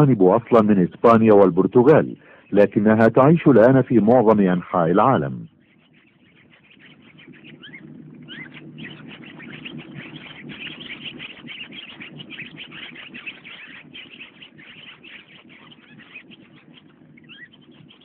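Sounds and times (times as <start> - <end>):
low steady drone: 0.0 - 18.0
small birds chirping: 0.0 - 18.0.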